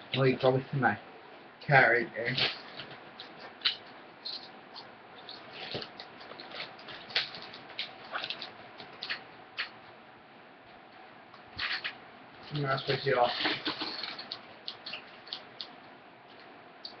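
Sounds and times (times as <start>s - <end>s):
plastic chip bag crinkling: 5.5s - 9.2s, 12.5s - 15.5s.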